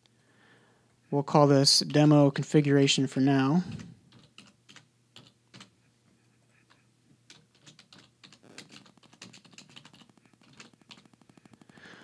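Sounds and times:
keyboard typing: 3.7 - 5.8, 6.7 - 12.0.

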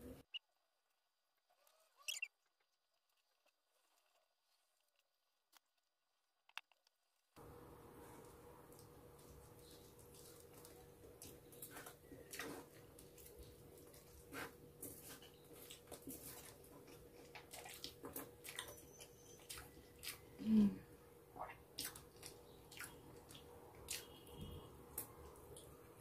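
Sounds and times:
chewing with wet clicks: 8.7 - 20.4, 21.4 - 25.8.

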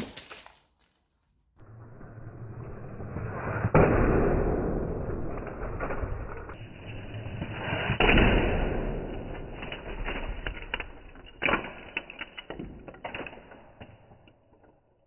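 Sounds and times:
plastic bricks clattering on tiles: 0.0 - 1.0, 9.6 - 15.0.

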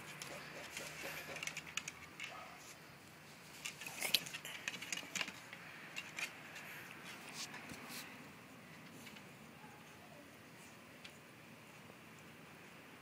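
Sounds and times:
dog claws clicking on wooden deck: 0.1 - 2.5, 3.6 - 6.7.

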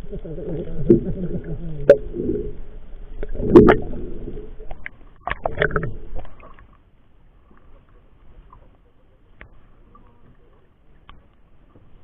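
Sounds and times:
low rumbles: 0.0 - 6.7
water splashing against camera: 0.0 - 12.0.

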